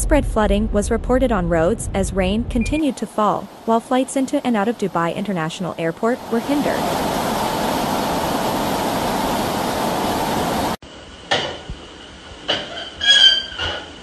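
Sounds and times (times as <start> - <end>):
floodwater rushing: 2.8 - 10.8.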